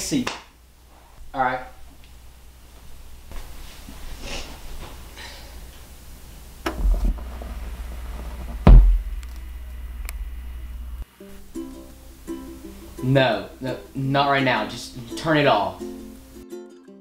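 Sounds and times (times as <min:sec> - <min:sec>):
soft rustles: 0:02.8 - 0:05.1
turntable low hum: 0:05.7 - 0:12.3
faint record ticks: 0:06.6 - 0:11.0
stylus thumping onto record: 0:06.6 - 0:11.0.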